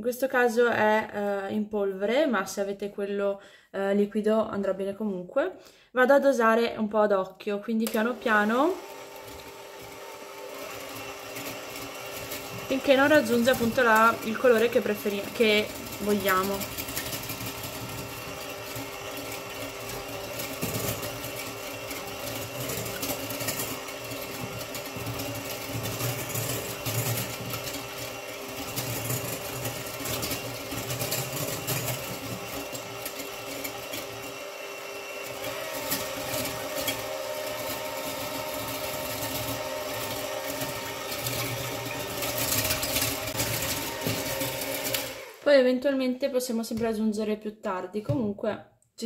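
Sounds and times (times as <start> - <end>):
electric hand mixer whisking batter: 7.8 - 46.0.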